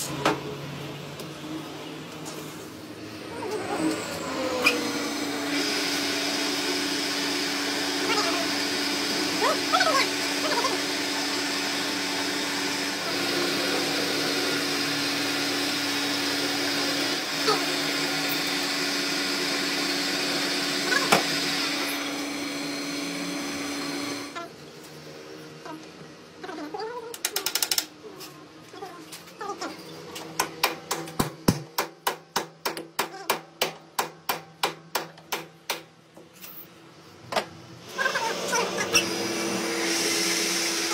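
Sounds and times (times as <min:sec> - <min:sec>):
lathe drilling whir: 0:03.0 - 0:24.4, 0:37.9 - 0:40.9.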